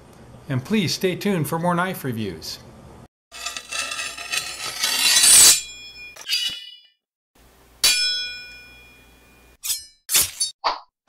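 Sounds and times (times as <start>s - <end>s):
sharp metallic clang: 7.8s - 10.5s.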